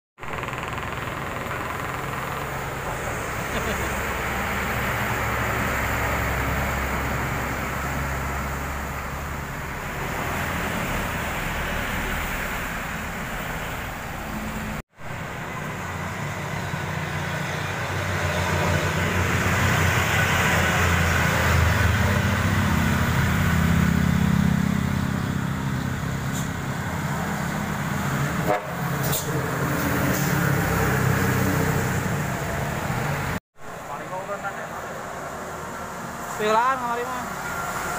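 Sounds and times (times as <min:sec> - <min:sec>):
diesel engines droning: 0:00.2 - 0:37.9
tyres hissing on wet road: 0:34.8 - 0:37.9.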